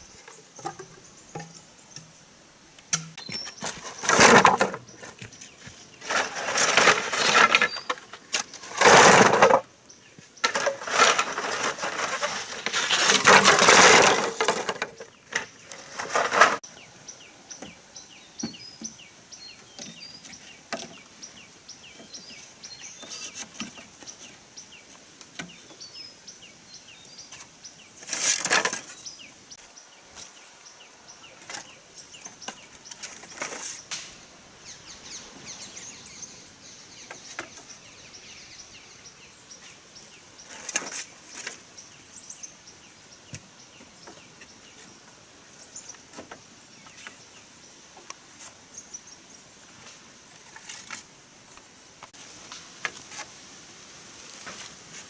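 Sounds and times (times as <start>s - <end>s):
bamboo and dry leaves rustling: 2.9s - 16.8s, 27.0s - 30.6s, 31.2s - 34.3s, 39.6s - 42.5s, 43.4s - 55.0s.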